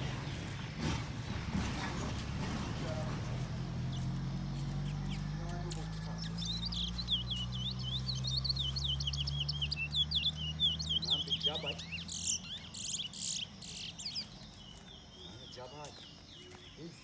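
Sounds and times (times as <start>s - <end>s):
songbird chirps and trills: 0.0s - 17.0s.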